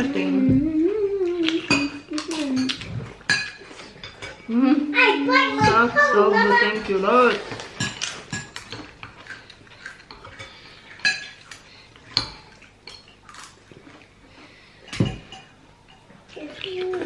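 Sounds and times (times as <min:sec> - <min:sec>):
cutlery clinking on ceramic bowl: 0:01.7 - 0:04.5, 0:06.6 - 0:09.2, 0:09.8 - 0:11.4, 0:14.9 - 0:16.1.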